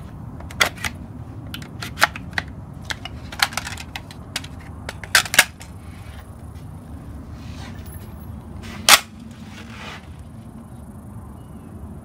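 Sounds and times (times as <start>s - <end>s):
rifle clicking and clattering: 0.4s - 5.8s, 8.8s - 9.1s.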